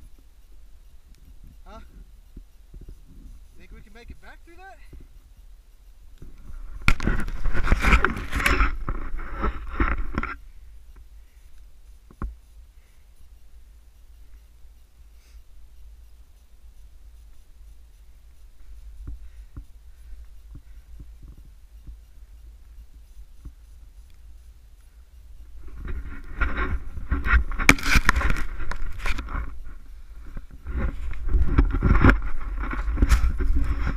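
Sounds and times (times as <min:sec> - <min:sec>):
gear scraping against camera: 0:00.0 - 0:11.1, 0:11.8 - 0:33.9
wind rumble on microphone: 0:17.8 - 0:33.9.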